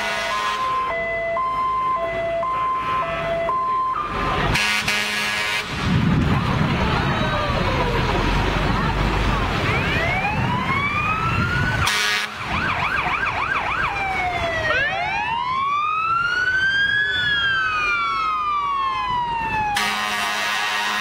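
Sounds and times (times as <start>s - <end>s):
air horn blast: 0.0s - 0.7s, 4.5s - 5.9s, 11.8s - 12.4s, 19.8s - 21.0s
fire truck siren wailing: 0.0s - 21.0s.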